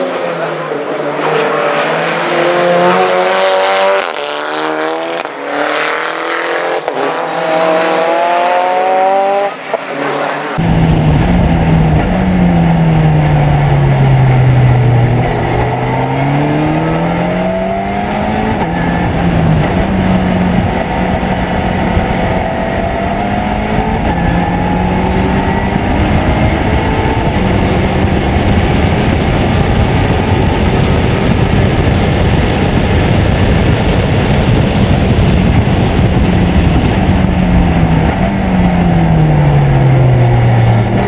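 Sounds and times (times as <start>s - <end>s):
onboard race car engine: 0.0s - 41.0s
race car accelerating and upshifting: 0.0s - 41.0s
wind rumble on microphone: 10.6s - 41.0s.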